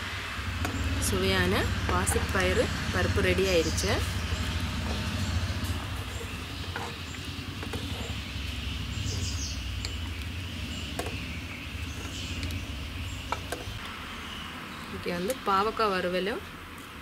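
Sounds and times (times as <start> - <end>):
low background rumble: 0.0 - 13.9.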